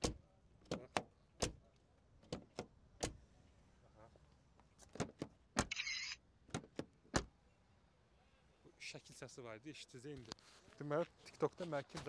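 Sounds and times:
car door latch clicks: 0:00.0 - 0:01.6, 0:02.2 - 0:03.2
car door thuds: 0:00.0 - 0:01.6, 0:06.5 - 0:07.3.

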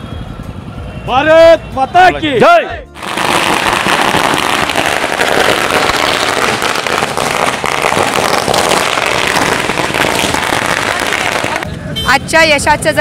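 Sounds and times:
firecrackers crackling: 0:03.0 - 0:11.7.

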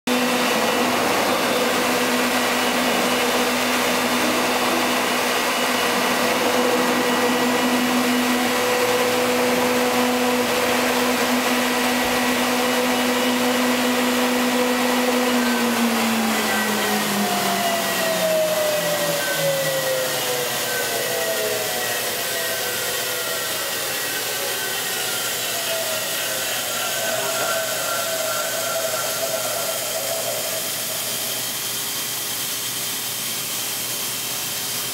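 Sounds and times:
rushing air: 0:00.1 - 0:11.2
router motor hum: 0:00.1 - 0:33.4.

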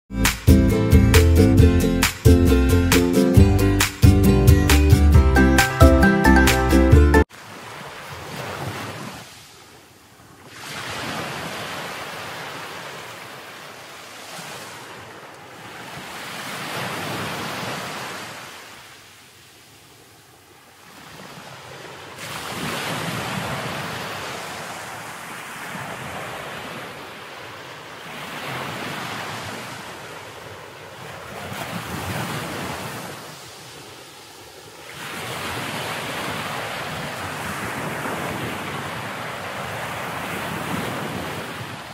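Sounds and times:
surf breaking on a beach: 0:10.4 - 0:19.6, 0:20.8 - 0:41.9.

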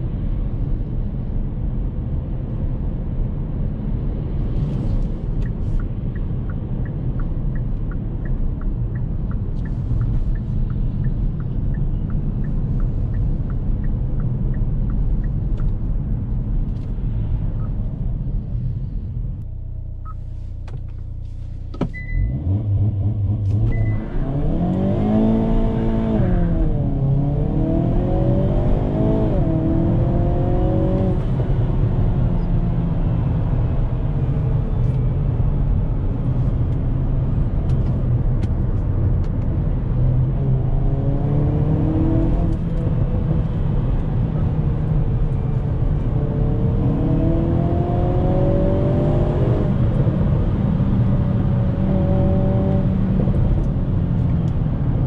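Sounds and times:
car engine revving through gears: 0:21.8 - 0:32.8, 0:39.9 - 0:54.7.

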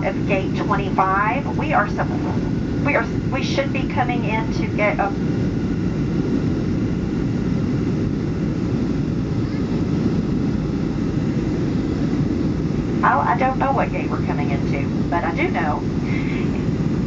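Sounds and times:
airliner cabin engine noise: 0:00.0 - 0:17.0.

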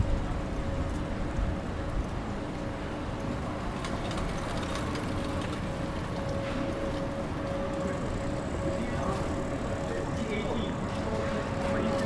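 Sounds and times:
continuous background noise: 0:00.0 - 0:12.0
faint high whine: 0:04.8 - 0:12.0
steady hum: 0:04.8 - 0:12.0.

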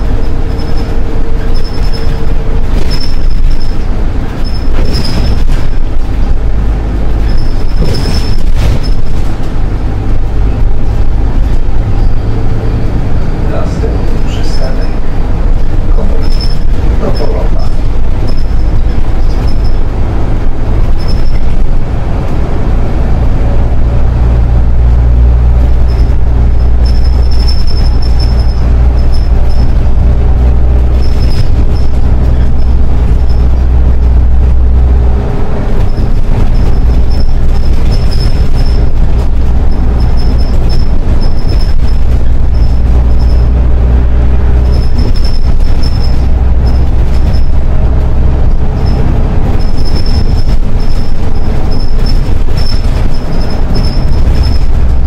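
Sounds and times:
bus engine drone with whine: 0:00.0 - 0:55.0
high squeak: 0:00.5 - 0:03.8, 0:04.4 - 0:05.5, 0:07.2 - 0:09.2, 0:14.3 - 0:15.0, 0:16.1 - 0:19.9, 0:20.9 - 0:21.6, 0:25.8 - 0:29.9, 0:35.8 - 0:39.0, 0:39.6 - 0:43.5, 0:44.6 - 0:47.6, 0:48.7 - 0:54.8.

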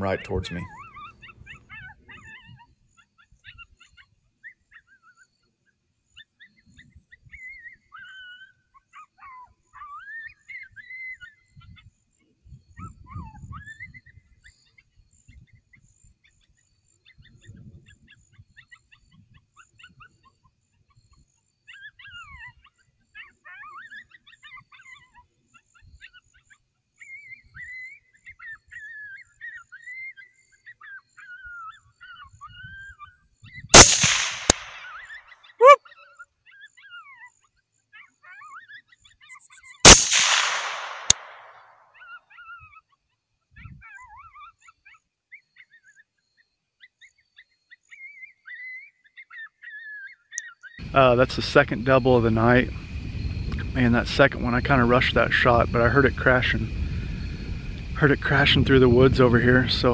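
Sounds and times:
coyote pup distress cries: 0:00.0 - 0:05.5, 0:06.1 - 0:11.8, 0:12.6 - 0:14.8, 0:16.2 - 0:51.2
rifle shots with echo: 0:33.8 - 0:35.0, 0:39.9 - 0:41.6.

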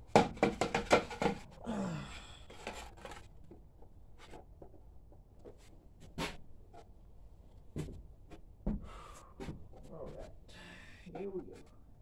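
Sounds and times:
battery box knocking and clattering: 0:00.1 - 0:01.4.

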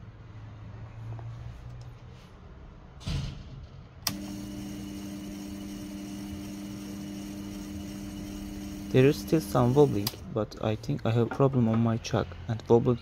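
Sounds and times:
lathe motor whine: 0:04.1 - 0:10.2.

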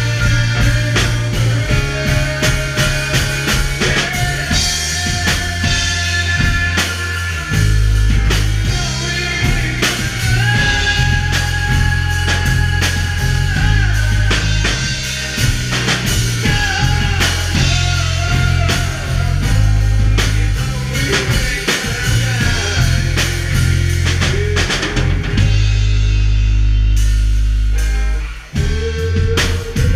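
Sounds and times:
bass guitar: 0:00.0 - 0:29.9
drum kit: 0:00.0 - 0:29.9
electric guitar: 0:00.0 - 0:29.9.

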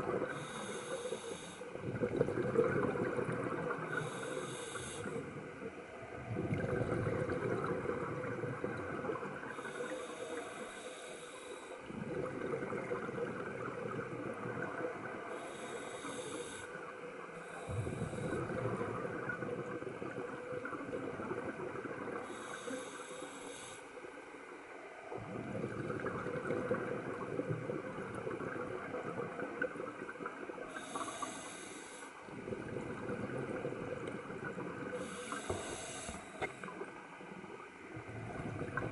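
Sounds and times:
regulator hissing inhale: 0:00.3 - 0:01.7, 0:03.8 - 0:05.3, 0:09.5 - 0:11.9, 0:15.3 - 0:18.6, 0:22.2 - 0:24.0, 0:30.7 - 0:32.2, 0:34.9 - 0:36.7
exhaled bubbles rushing: 0:01.8 - 0:04.1, 0:06.0 - 0:09.6, 0:11.9 - 0:15.3, 0:17.7 - 0:22.2, 0:25.1 - 0:30.8, 0:32.3 - 0:35.5, 0:36.3 - 0:38.9.

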